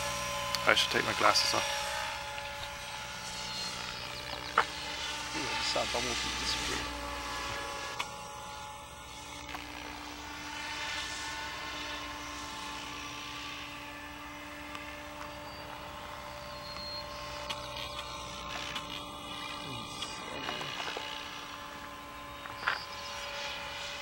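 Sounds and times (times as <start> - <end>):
model helicopter motor whine: 0.0 - 24.0.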